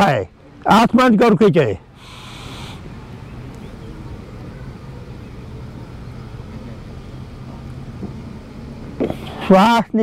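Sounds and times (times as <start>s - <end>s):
faint outdoor background noise: 0.0s - 10.0s
low mechanical hum: 1.6s - 9.5s.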